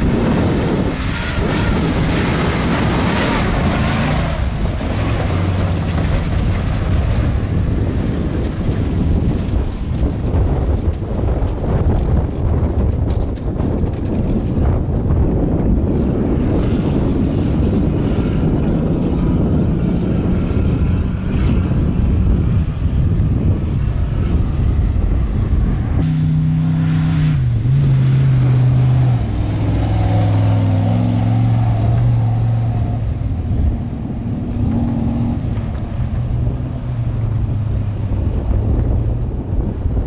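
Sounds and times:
race vehicle engine rumble: 0.0 - 40.0
steady engine note: 25.0 - 38.5.

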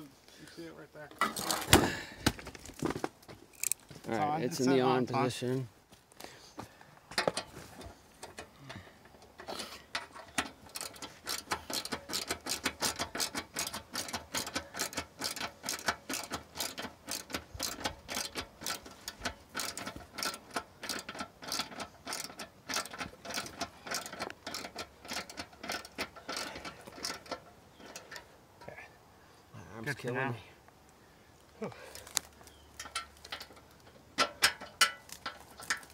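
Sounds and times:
socket ratchet clicking: 10.3 - 27.4.

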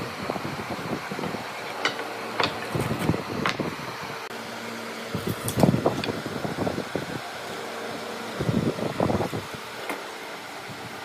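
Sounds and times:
steady machine hum: 0.0 - 11.0
tools knocking on wood: 1.8 - 2.8.

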